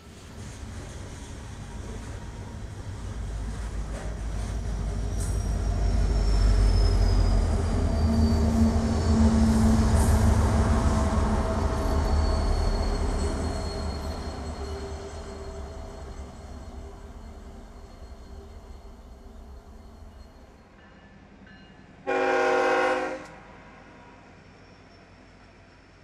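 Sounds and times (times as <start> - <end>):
diesel locomotive engine rumble: 0.0 - 26.0
train hoppers clattering on rails: 3.4 - 5.6
high wheel squeal: 5.0 - 20.6.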